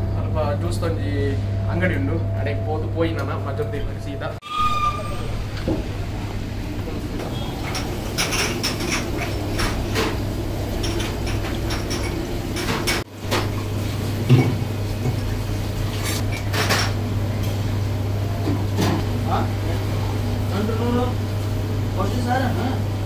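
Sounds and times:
steady low hum: 0.0s - 13.0s
plates and cutlery clinking: 7.3s - 10.2s, 10.8s - 13.1s.

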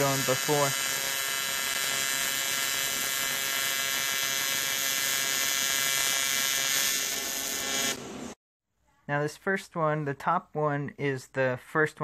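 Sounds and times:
welding arc buzzing hiss: 0.0s - 8.4s.

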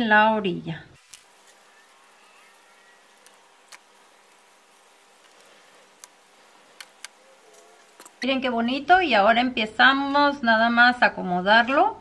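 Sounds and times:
room hum: 1.0s - 8.5s.

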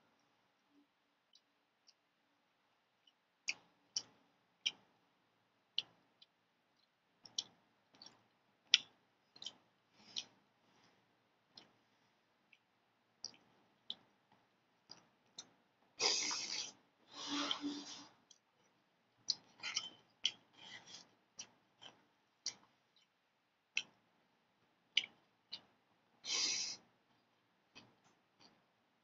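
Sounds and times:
mouth chewing noodles: 14.8s - 18.4s.

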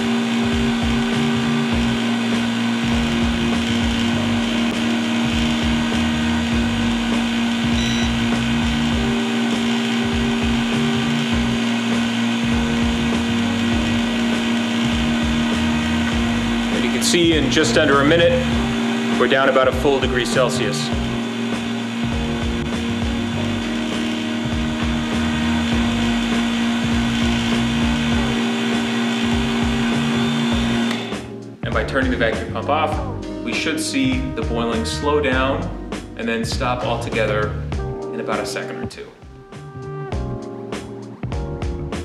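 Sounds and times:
vacuum pump humming: 0.0s - 31.4s.

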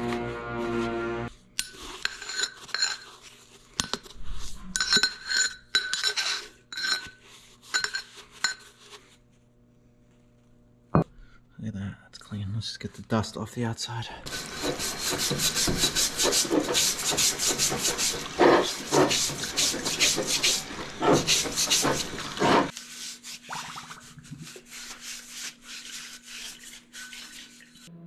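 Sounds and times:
rag scrubbing metal housing: 14.3s - 22.7s.

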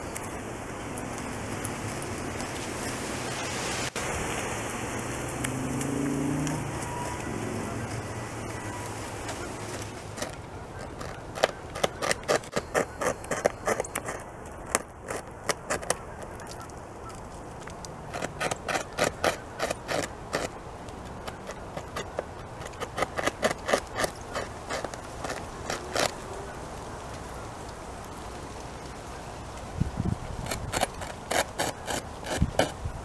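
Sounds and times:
beaver gnawing wood: 5.4s - 26.6s, 30.0s - 33.0s.

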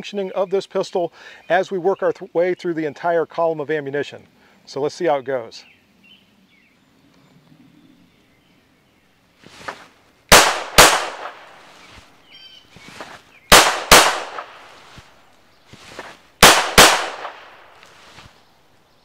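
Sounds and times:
pistol shots: 10.3s - 11.6s, 13.5s - 14.7s, 16.4s - 17.8s.

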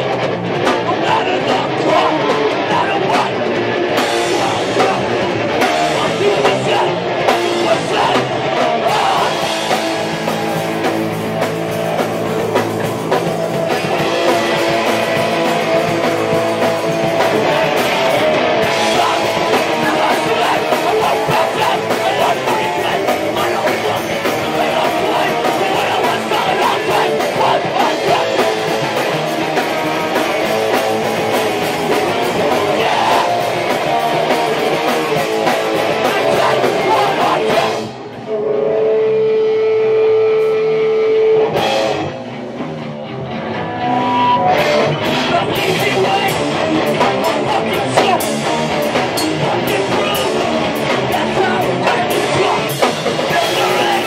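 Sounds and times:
person singing: 0.0s - 11.0s, 12.0s - 42.0s, 43.6s - 54.0s
drum kit: 0.0s - 38.3s, 40.3s - 54.0s
electric guitar: 0.0s - 54.0s.

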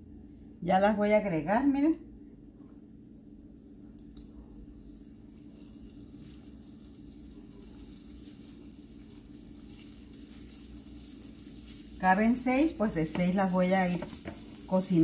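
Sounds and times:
steady low hum: 0.0s - 15.0s
doughnuts sizzling in oil: 3.8s - 15.0s.

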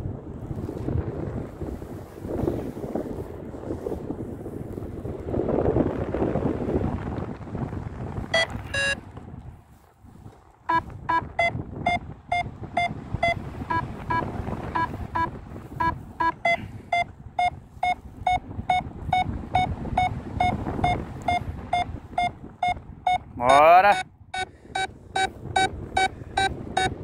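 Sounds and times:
wind on microphone: 0.0s - 27.0s
variometer beeping: 8.3s - 9.0s, 10.7s - 27.0s.

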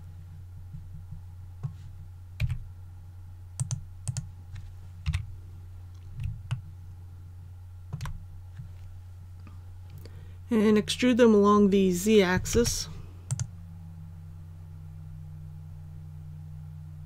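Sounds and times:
low electrical hum: 0.0s - 17.0s
keyboard keys clicking: 3.6s - 4.3s, 5.0s - 5.3s, 7.9s - 8.2s, 13.3s - 13.5s
computer mouse clicking: 3.6s - 5.3s, 7.9s - 8.7s, 13.3s - 13.5s.

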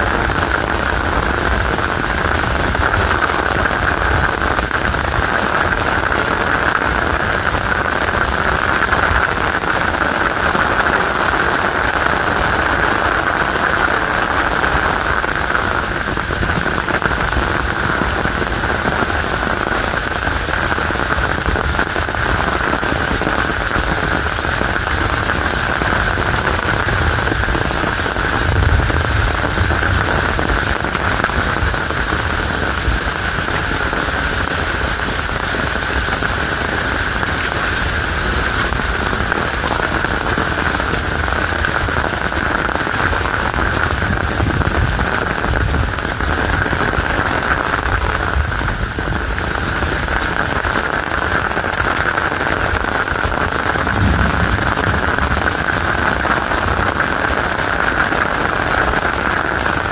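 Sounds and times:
heavy rain on an umbrella: 0.0s - 59.9s
low rumble: 26.2s - 31.6s, 53.4s - 58.0s.

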